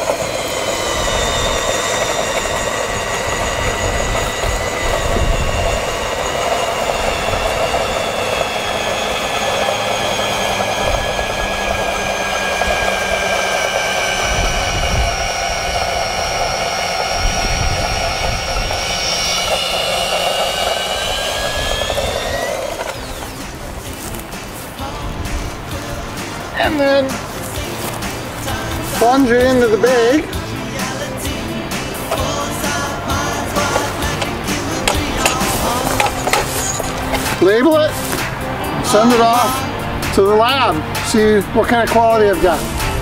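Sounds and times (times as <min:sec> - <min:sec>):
drill motor whining under load: 0:00.0 - 0:40.2
electric drill boring into hay bale: 0:00.0 - 0:43.0.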